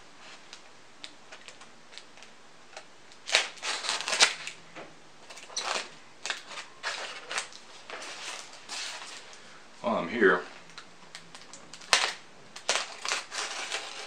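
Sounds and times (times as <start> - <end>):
knife slitting packing tape: 2.7 - 4.6, 5.3 - 9.2, 11.3 - 14.0.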